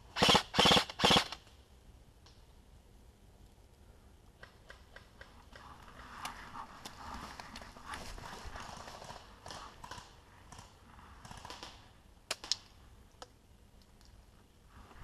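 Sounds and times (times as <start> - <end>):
sharp clicks: 9.9 - 14.2.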